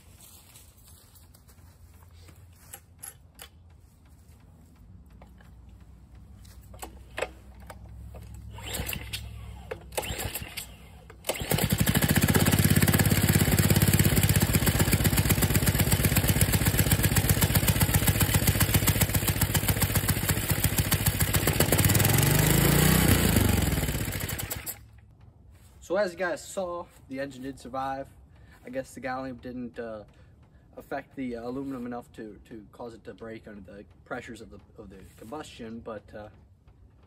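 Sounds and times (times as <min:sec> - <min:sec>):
recoil cord pulled: 0:06.7 - 0:25.0
small engine running: 0:08.0 - 0:25.0.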